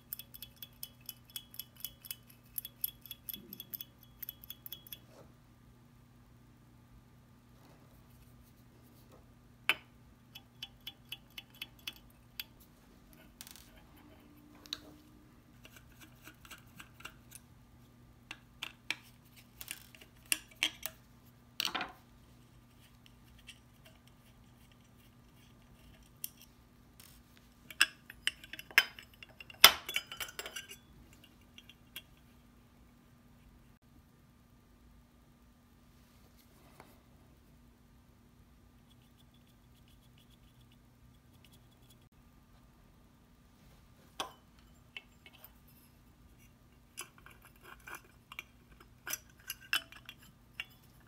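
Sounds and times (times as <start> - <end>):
metal tools clicking and clinking: 0.0 - 5.0, 27.7 - 32.2, 47.0 - 51.0.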